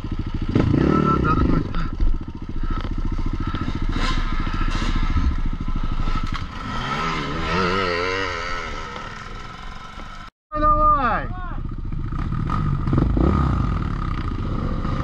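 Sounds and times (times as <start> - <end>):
motorcycle engine idling: 0.0 - 7.1, 8.8 - 13.1.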